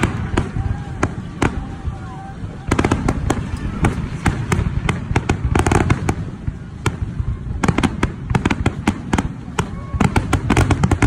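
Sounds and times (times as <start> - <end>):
low rumble: 0.0 - 8.5
fireworks bangs and crackling pops: 0.0 - 11.0.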